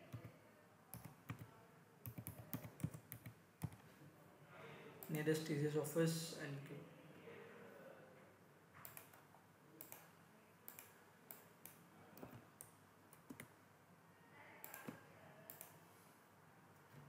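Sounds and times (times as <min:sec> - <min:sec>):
computer mouse clicks: 0:00.9 - 0:03.8, 0:08.8 - 0:09.2, 0:09.8 - 0:10.1, 0:10.7 - 0:13.5, 0:14.6 - 0:15.8
keyboard clicks: 0:00.9 - 0:03.8, 0:08.8 - 0:09.2, 0:09.8 - 0:10.1, 0:10.7 - 0:13.5.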